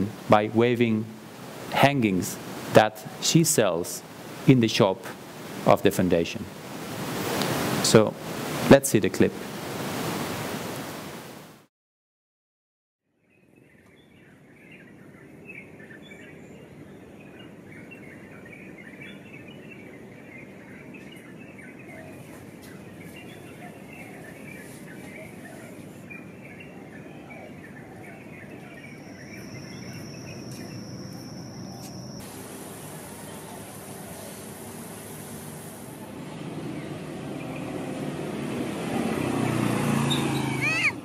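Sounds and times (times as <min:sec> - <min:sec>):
steady hiss: 0:00.0 - 0:11.4, 0:32.2 - 0:36.6
birds and insects chirping: 0:13.1 - 0:41.0.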